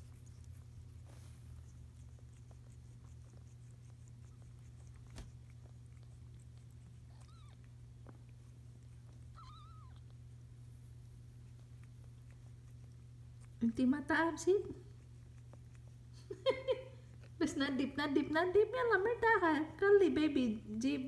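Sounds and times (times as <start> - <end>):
steady low hum: 0.0 - 21.0
kittens mewing: 7.0 - 7.7, 9.3 - 10.2.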